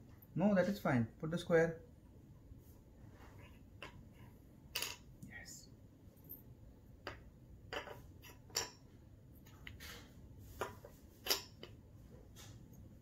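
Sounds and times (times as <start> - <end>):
wooden toy pieces knocking: 7.0 - 8.8.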